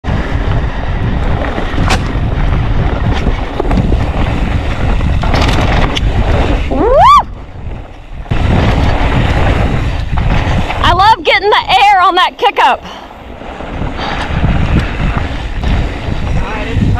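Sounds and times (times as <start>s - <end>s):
bike tyres rolling over dirt: 0.0s - 16.9s
wind buffeting microphone: 0.0s - 16.9s.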